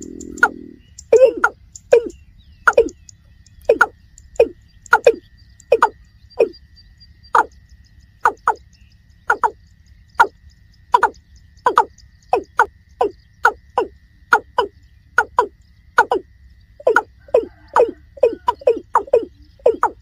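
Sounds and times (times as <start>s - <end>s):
bird calling short kok notes: 0.0s - 3.1s.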